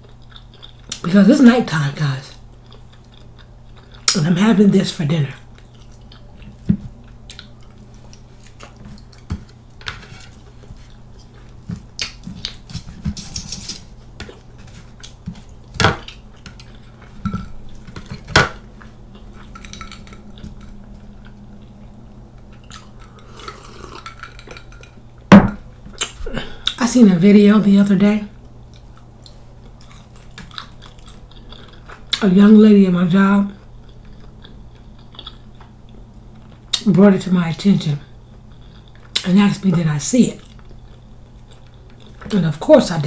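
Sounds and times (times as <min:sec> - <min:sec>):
cutlery scraping metal tray: 0:12.8 - 0:13.9.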